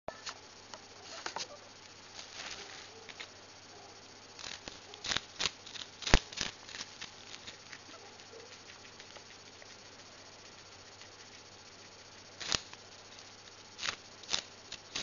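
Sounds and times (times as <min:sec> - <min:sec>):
guinea pig crunching fennel: 0:04.4 - 0:15.0.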